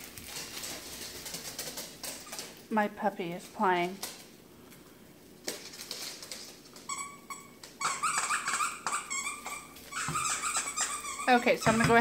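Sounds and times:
puppy whining and yipping: 6.9s - 11.4s.

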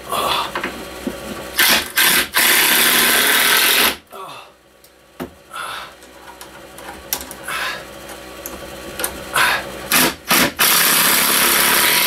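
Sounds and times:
cordless drill driving screw into wood: 1.6s - 4.0s, 9.9s - 12.0s.

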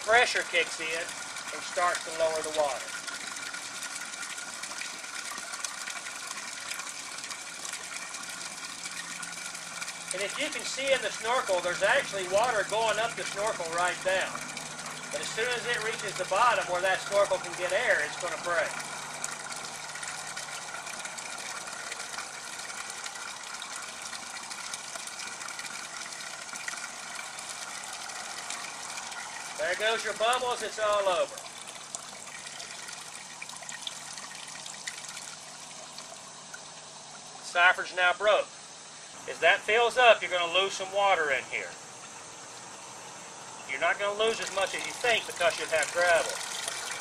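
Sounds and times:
water gushing and splashing: 0.0s - 37.3s, 43.8s - 47.0s
crackle of air bubbles: 44.4s - 47.0s.

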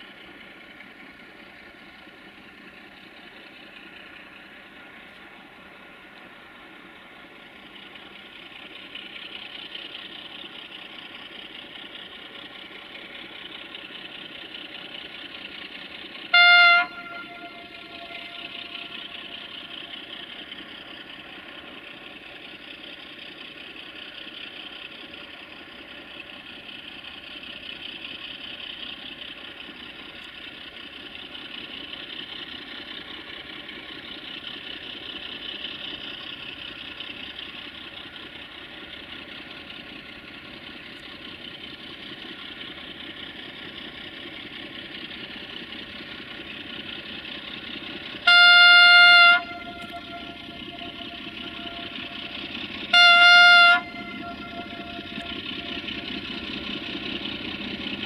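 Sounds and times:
diesel locomotive engine running: 0.0s - 58.0s
locomotive horn blast: 16.3s - 20.5s, 48.2s - 57.3s.

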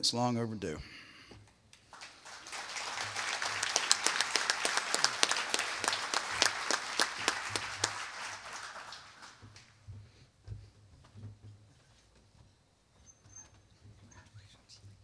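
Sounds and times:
audience applauding: 1.8s - 9.8s.

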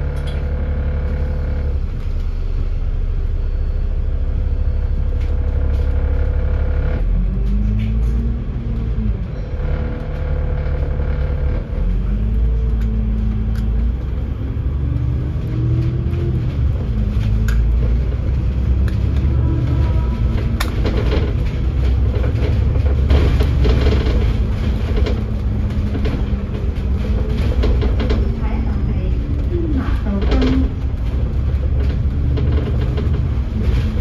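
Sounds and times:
bus engine and road rumble: 0.0s - 34.0s
clicks and rattles: 14.9s - 34.0s.

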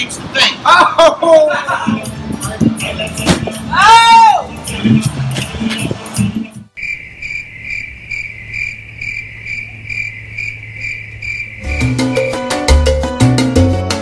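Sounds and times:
salsa music with drums: 1.7s - 6.7s, 11.6s - 14.0s
crickets chirping: 6.7s - 12.6s.

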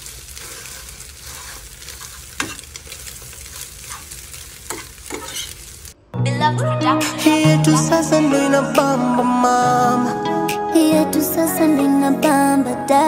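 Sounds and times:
eggs sizzling in a frying pan: 0.0s - 6.0s
fork scraping a pan: 0.3s - 5.7s.

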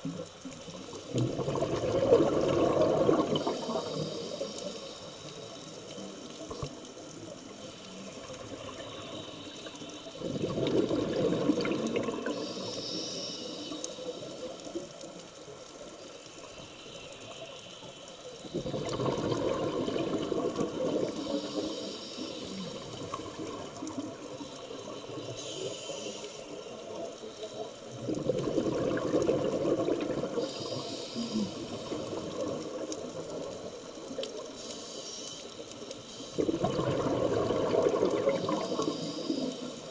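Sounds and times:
exhaled bubbles rushing: 1.0s - 4.1s, 10.2s - 12.4s, 18.5s - 21.4s, 27.9s - 30.8s, 36.3s - 39.0s.

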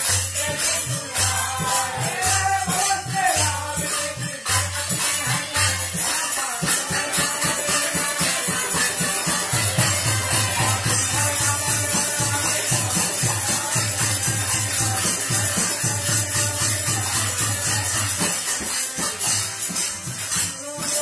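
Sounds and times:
hand cymbals clashing: 0.0s - 21.0s
harmonium: 0.0s - 21.0s
hand drum beat: 4.4s - 21.0s.

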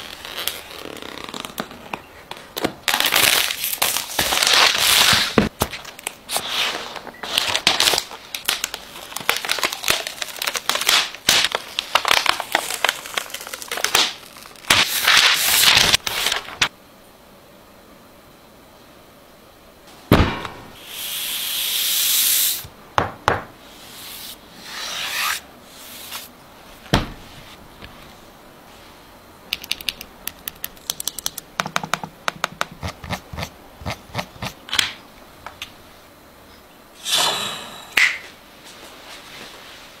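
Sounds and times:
rubbing and sliding: 23.7s - 29.0s.

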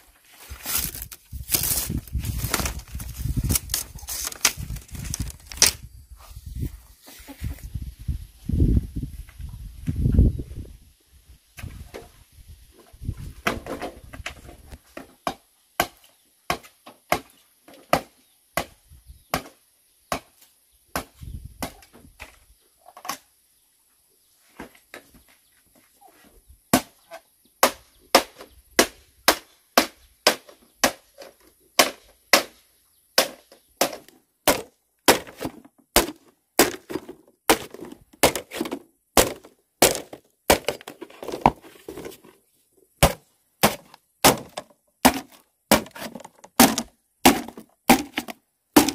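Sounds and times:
machete chopping bamboo: 15.0s - 22.4s, 26.7s - 27.0s, 27.6s - 32.6s, 33.2s - 41.5s, 43.0s - 48.9s.

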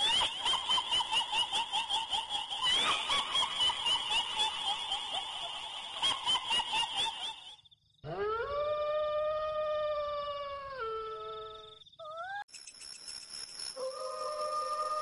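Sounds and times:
shrill giggling cackle: 0.0s - 7.7s.

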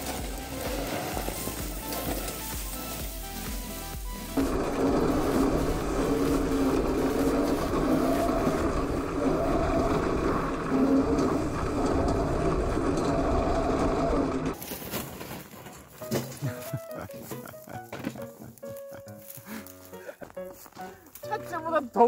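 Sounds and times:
rumble over rough ground: 0.0s - 14.6s
electric motor whining: 4.1s - 14.6s.

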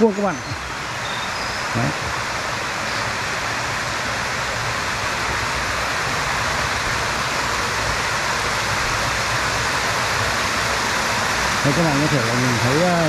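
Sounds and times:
mountain stream rushing: 0.0s - 13.0s.

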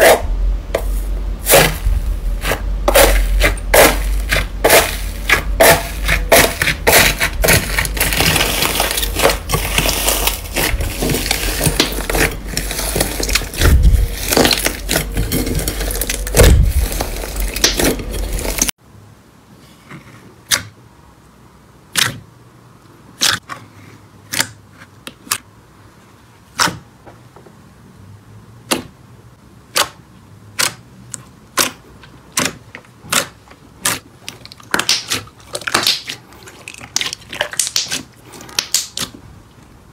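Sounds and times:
crunchy slime crackling: 0.8s - 18.7s, 31.5s - 39.2s.

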